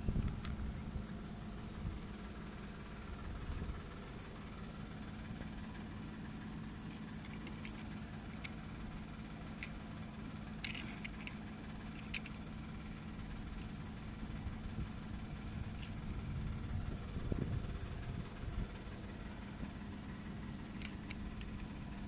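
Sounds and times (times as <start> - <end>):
low engine-like hum: 0.0 - 22.0
small sharp clicks: 7.2 - 8.6, 10.6 - 12.5, 20.7 - 21.8.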